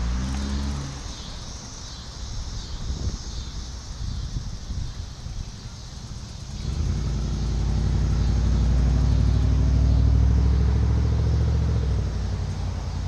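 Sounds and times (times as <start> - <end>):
car driving past: 0.0 - 1.4, 6.5 - 13.0.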